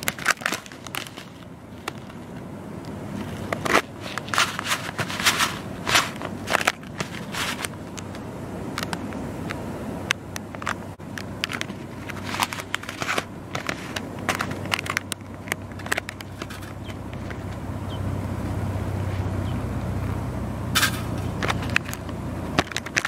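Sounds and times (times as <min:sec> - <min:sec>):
foil pouch crinkling: 0:00.0 - 0:02.2.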